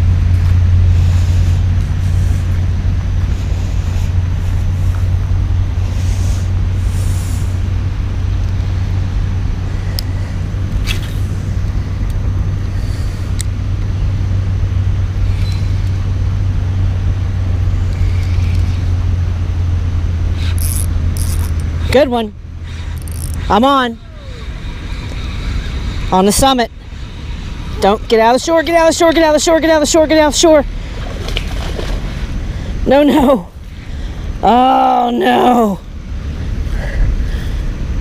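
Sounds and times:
steady low rumble: 0:00.0 - 0:38.0
fishing reel clicks: 0:17.9 - 0:18.8, 0:20.4 - 0:22.0, 0:22.7 - 0:23.6.

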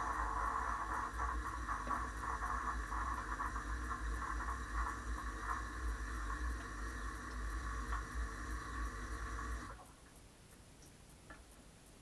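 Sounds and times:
dishwasher low hum: 0:00.0 - 0:09.8.

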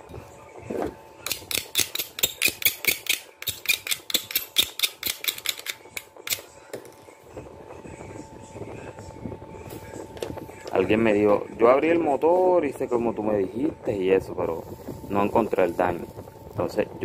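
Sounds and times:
faint high hum: 0:00.0 - 0:17.0
clicks and scratches of tools: 0:01.3 - 0:06.5.

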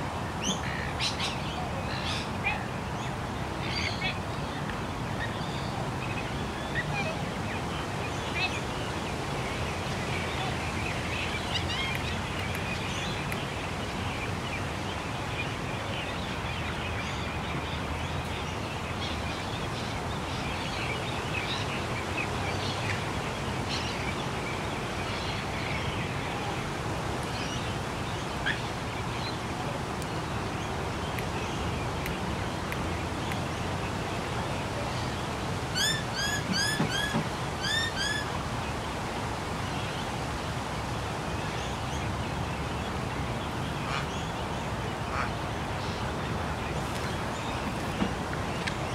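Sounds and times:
birds chirping and twittering: 0:00.3 - 0:48.9
distant traffic hum: 0:21.2 - 0:48.9.

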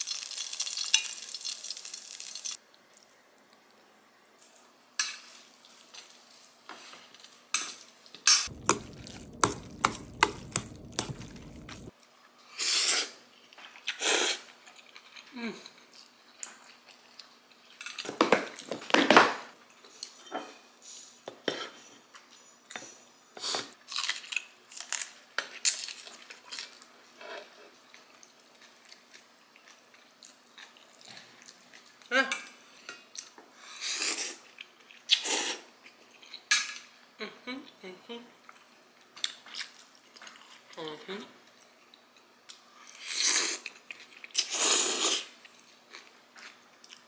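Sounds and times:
chewing: 0:23.9 - 0:32.5, 0:38.4 - 0:44.5, 0:45.1 - 0:47.0.

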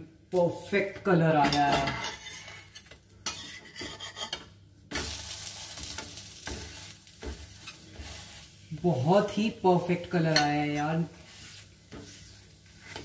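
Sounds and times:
pancake sizzling in oil: 0:00.6 - 0:13.0
metal spatula scraping a griddle: 0:01.4 - 0:08.6, 0:10.2 - 0:13.0.

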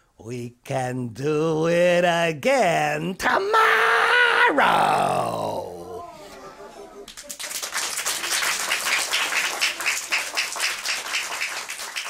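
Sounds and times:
audience applauding: 0:06.9 - 0:12.0.

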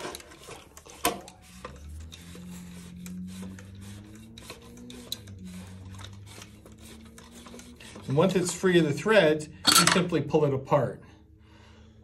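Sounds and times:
metal rubbing on plastic: 0:00.0 - 0:09.1.

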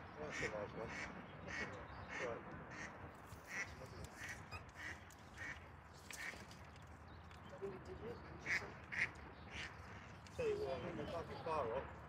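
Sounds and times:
duck quacking faintly: 0:00.2 - 0:05.6.

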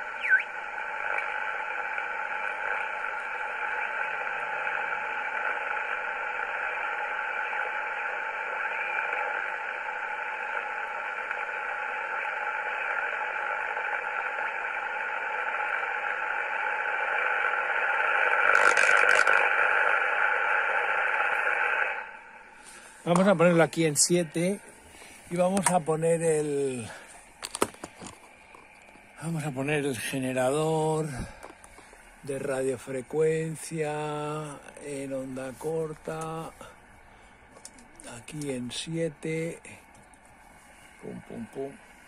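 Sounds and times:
short radio crackle: 0:00.0 - 0:09.7, 0:10.4 - 0:22.1
radio receiver hiss: 0:00.0 - 0:42.0.

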